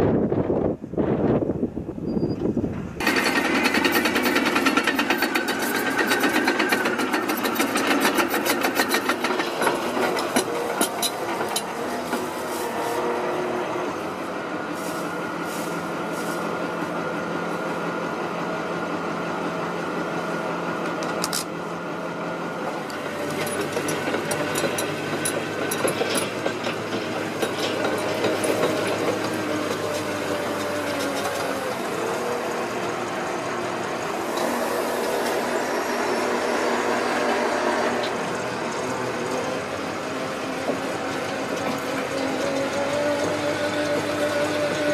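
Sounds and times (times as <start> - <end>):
diesel engine running: 1.6 - 44.9
metallic clicks and clanks: 3.0 - 11.7, 23.3 - 31.5.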